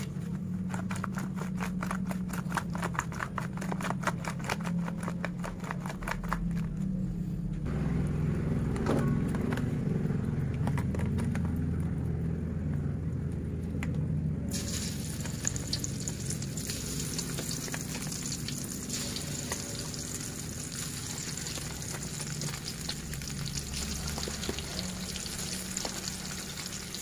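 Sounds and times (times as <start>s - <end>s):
steady low hum: 0.0s - 27.0s
hands mixing prawns squelching: 14.6s - 27.0s.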